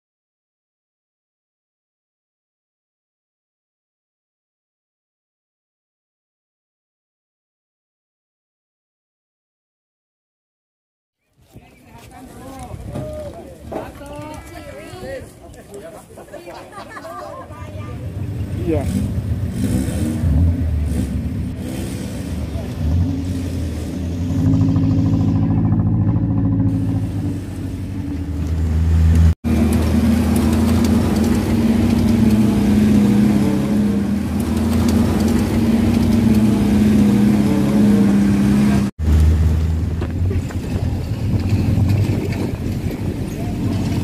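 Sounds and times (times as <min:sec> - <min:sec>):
jeep engines running: 0:17.6 - 0:44.0.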